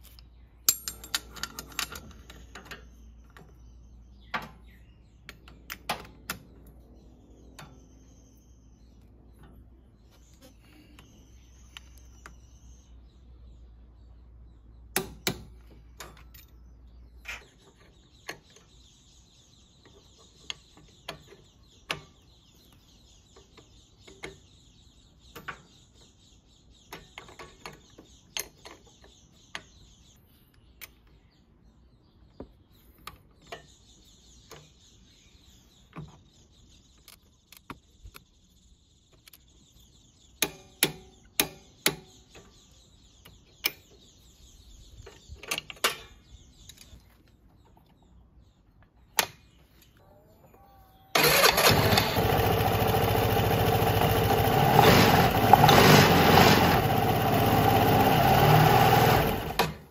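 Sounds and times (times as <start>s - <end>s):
metal tool clicks and clacks: 0.1s - 2.8s.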